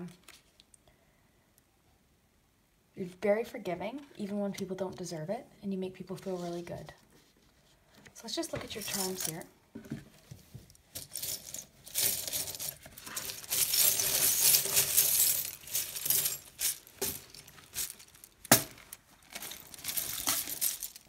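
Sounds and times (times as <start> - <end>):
small charms clinking in a bag: 8.6 - 9.4, 11.0 - 21.0.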